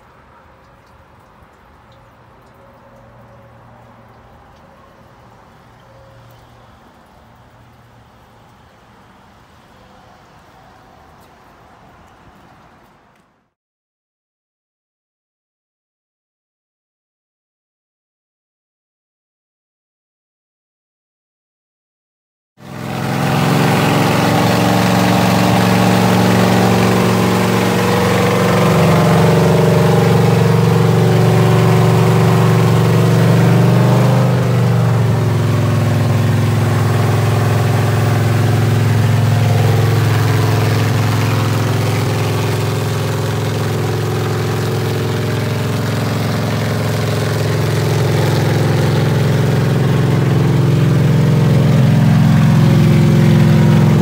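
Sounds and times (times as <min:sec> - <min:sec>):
engine running at fast idle: 0:22.6 - 0:54.0.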